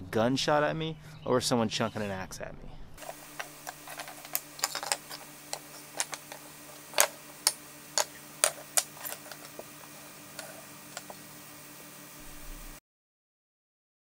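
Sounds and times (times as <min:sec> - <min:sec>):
faint low hum: 0:00.0 - 0:12.8
wooden pieces clicking on bench: 0:03.0 - 0:09.7.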